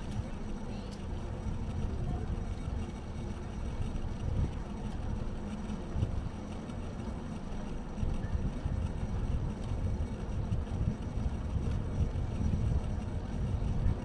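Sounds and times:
city street rumble: 0.0 - 14.0
wind on microphone: 8.0 - 14.0.

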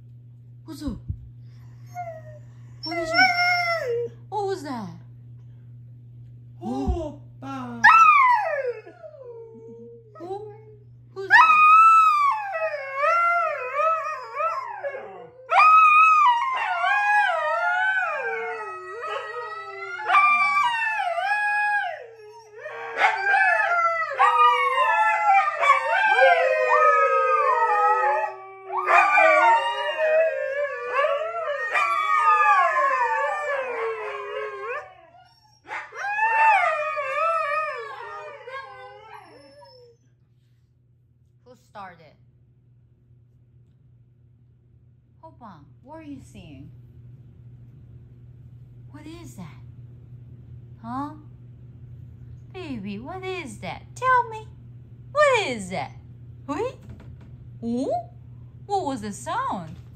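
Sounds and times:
dogs howling together: 7.8 - 10.7, 11.3 - 40.0.

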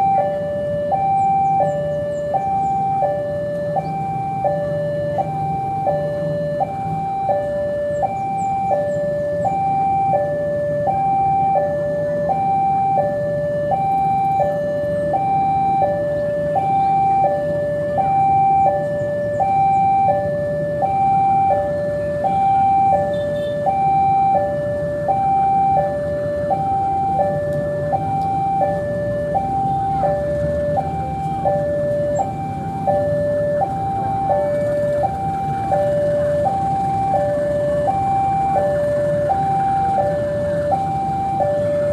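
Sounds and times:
diesel locomotive rumble: 0.0 - 41.9
two-tone crossing warning alarm: 0.0 - 41.9.

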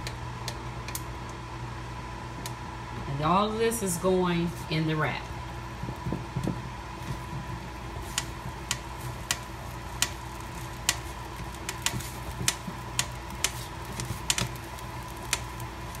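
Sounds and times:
steady hum: 0.0 - 16.0
food frying and popping in skillet: 5.7 - 16.0.

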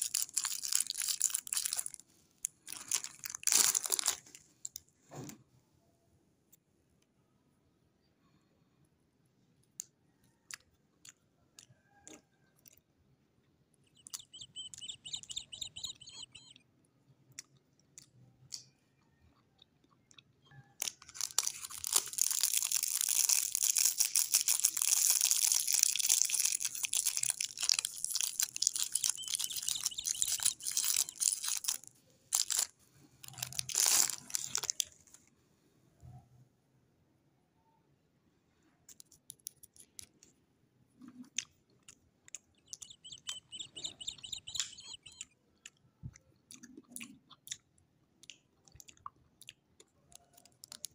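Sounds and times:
cellophane wrapper crinkling: 0.0 - 4.8, 20.8 - 35.2.

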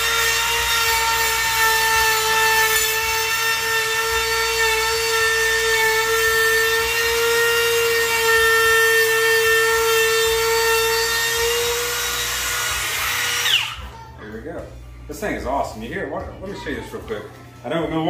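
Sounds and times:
router bit rasping wood: 0.0 - 13.8
router motor whine: 0.0 - 13.9.

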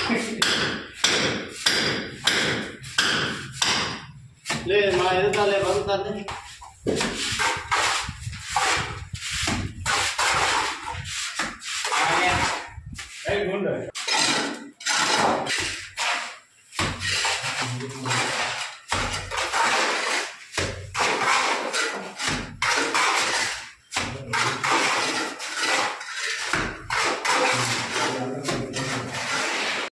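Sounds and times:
trowel scraping metal pan: 5.4 - 13.2, 14.0 - 29.9
mortar flung onto wall: 14.0 - 29.9.

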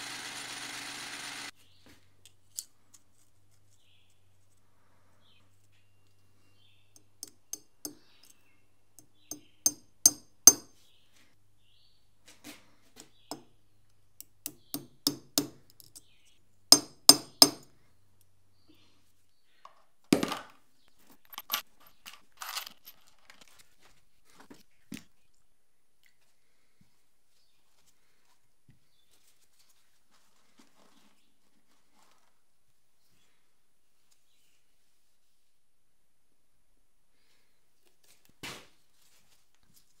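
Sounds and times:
hammer tapping on metal: 9.3 - 10.7, 14.5 - 15.6, 16.8 - 17.6
scuffing and handling noise: 26.8 - 32.7, 37.8 - 40.0.

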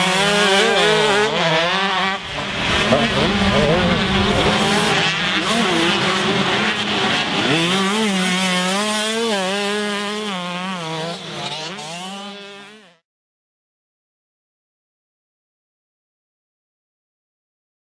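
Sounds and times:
motocross bike engine revving: 0.0 - 13.0.

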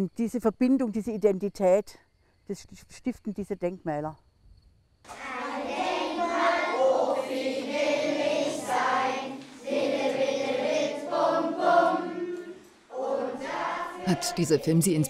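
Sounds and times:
children singing in unison: 5.1 - 15.0.

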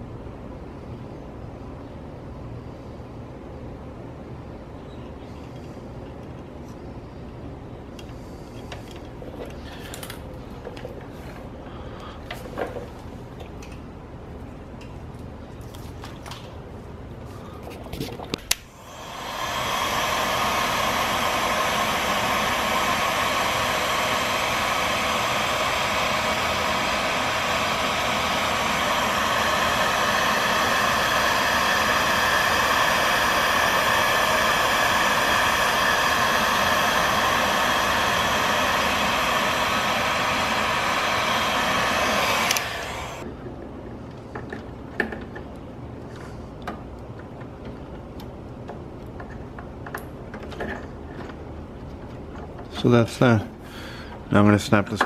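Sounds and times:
heat gun fan blowing hiss: 0.0 - 51.6, 52.2 - 55.0
heat gun switch click: 42.4 - 42.9.

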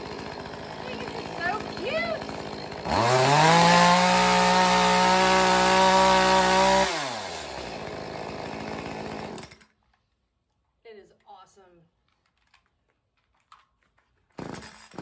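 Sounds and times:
chainsaw engine idling and revving: 0.0 - 9.7, 14.4 - 15.0.

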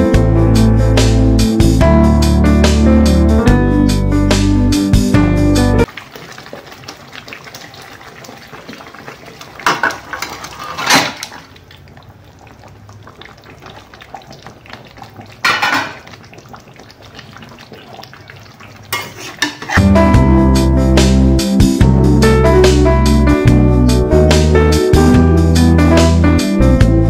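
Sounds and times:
low steady sizzle: 5.8 - 20.3
metal spatula scraping a pan: 9.8 - 11.3, 18.9 - 19.9.

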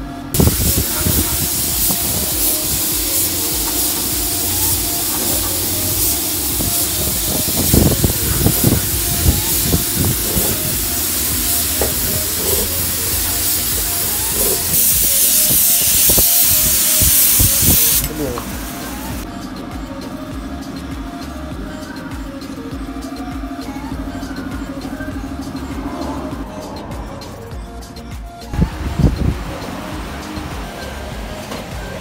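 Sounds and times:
spray gun hissing: 0.4 - 19.3.

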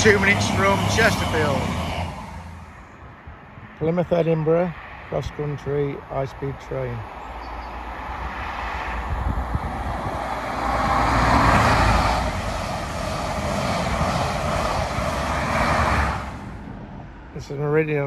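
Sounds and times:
train coaches rumbling on rails: 0.0 - 2.8, 9.1 - 17.0
diesel train passing: 0.0 - 4.1, 4.7 - 18.0.

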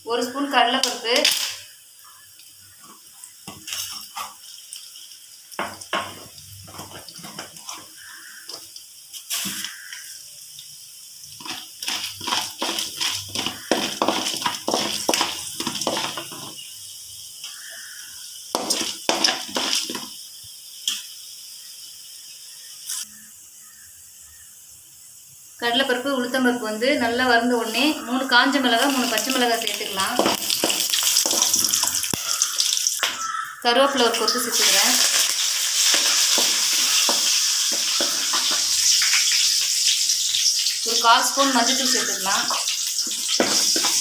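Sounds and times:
seeds sizzling and crackling in oil: 0.1 - 44.0
wooden spatula scraping pan: 3.5 - 4.4, 11.4 - 16.6.

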